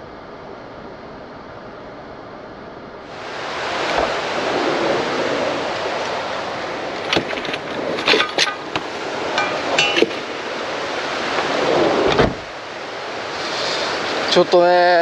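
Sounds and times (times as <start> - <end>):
mountain stream rushing: 3.1 - 15.0
sharp clinks and knocks: 9.4 - 10.3.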